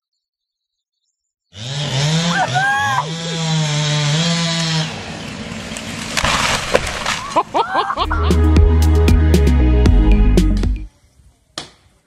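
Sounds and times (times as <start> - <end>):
chainsaw engine revving: 1.6 - 7.2.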